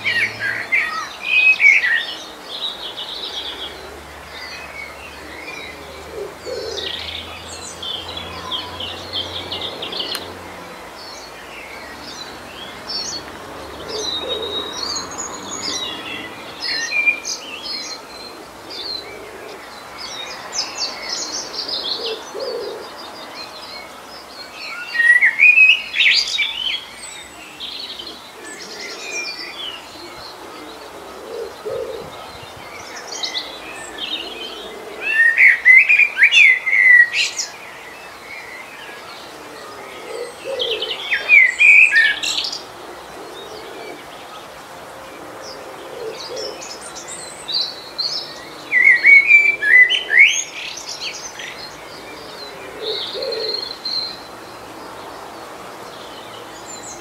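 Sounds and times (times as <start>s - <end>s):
soft outdoor hiss: 0.0s - 57.0s
songbird chirping: 0.0s - 57.0s.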